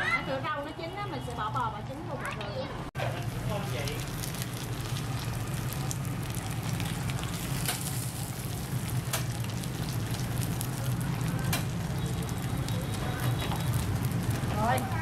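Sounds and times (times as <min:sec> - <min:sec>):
batter sizzling in oil: 0:03.0 - 0:15.0.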